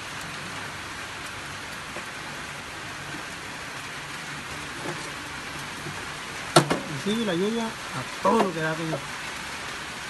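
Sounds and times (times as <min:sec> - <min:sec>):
heavy rain pouring: 0:00.0 - 0:10.0.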